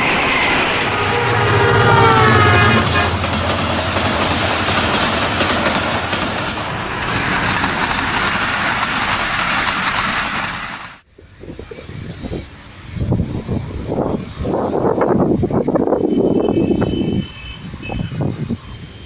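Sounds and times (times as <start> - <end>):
diesel locomotive engine passing: 0.0 - 11.0
train wheels on rail: 0.0 - 11.0.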